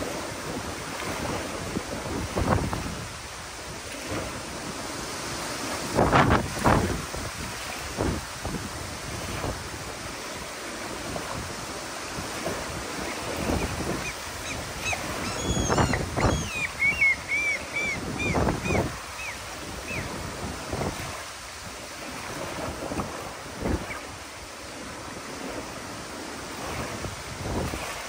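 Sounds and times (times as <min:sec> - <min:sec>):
waves lapping on shore: 0:00.0 - 0:28.0
wind buffeting microphone: 0:00.0 - 0:28.0
bird calling short high notes: 0:14.0 - 0:20.1.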